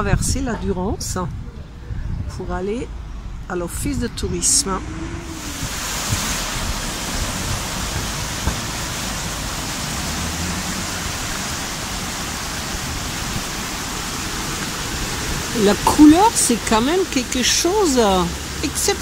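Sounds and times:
river rushing over rapids: 0:04.8 - 0:19.0.

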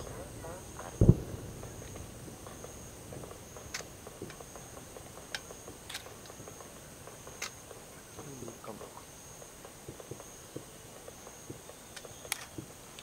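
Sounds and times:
faint low rumble: 0:00.0 - 0:07.2.

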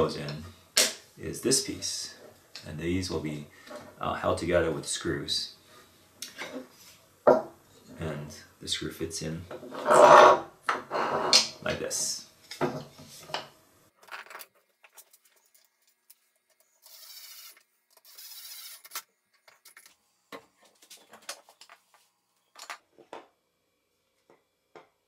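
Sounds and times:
clicks and knocks of parts handled: 0:14.0 - 0:16.7.

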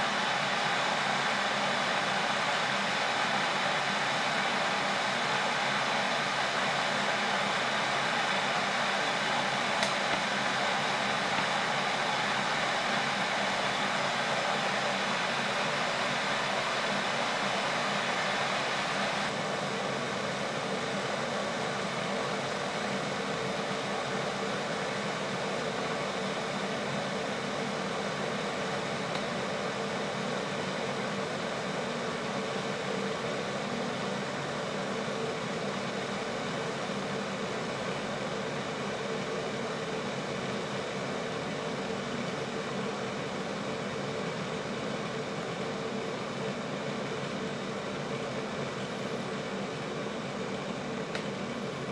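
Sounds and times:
electric kettle heating water hiss: 0:00.0 - 0:51.9.

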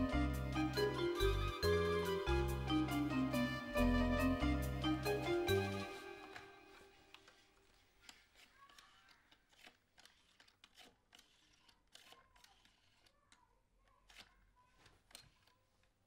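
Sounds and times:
rotary phone dial clicking: 0:07.1 - 0:13.4, 0:14.0 - 0:16.0.

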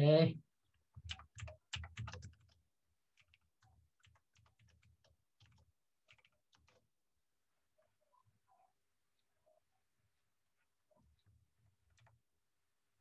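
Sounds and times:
computer keyboard typing: 0:00.9 - 0:06.9, 0:11.8 - 0:12.2.

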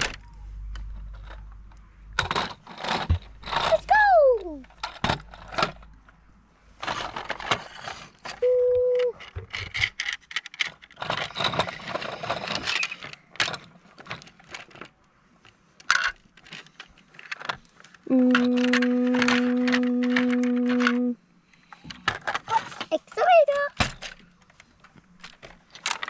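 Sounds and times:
toy pieces clattering on wood: 0:09.1 - 0:14.9, 0:15.8 - 0:21.1, 0:25.2 - 0:26.0.

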